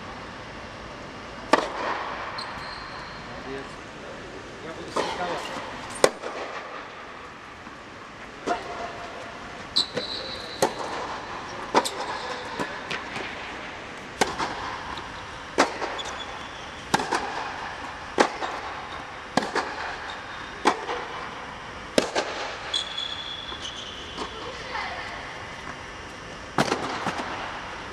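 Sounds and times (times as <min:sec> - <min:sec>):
tennis ball struck and bouncing: 0:01.5 - 0:02.1, 0:05.9 - 0:06.8, 0:14.2 - 0:16.1, 0:16.8 - 0:20.0, 0:21.9 - 0:22.6
shoe squeak: 0:02.4 - 0:03.4, 0:09.7 - 0:10.6, 0:15.9 - 0:16.8, 0:22.7 - 0:24.2.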